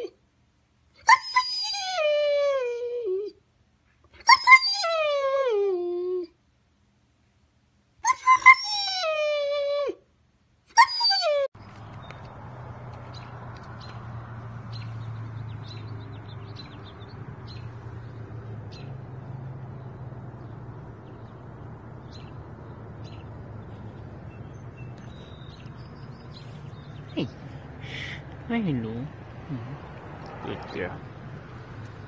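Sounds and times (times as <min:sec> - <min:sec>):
dog whining: 0:01.0 - 0:03.3, 0:04.2 - 0:06.3, 0:10.8 - 0:11.5
low rumble: 0:12.3 - 0:28.5.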